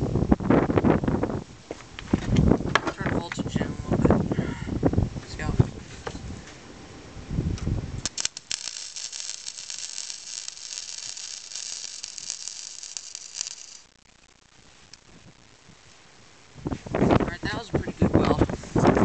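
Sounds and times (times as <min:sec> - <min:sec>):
welder arc crackling: 0:08.0 - 0:17.8.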